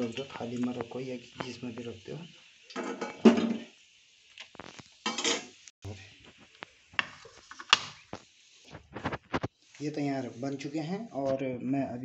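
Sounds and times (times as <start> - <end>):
metal skimmer scraping a pan: 5.0 - 5.5.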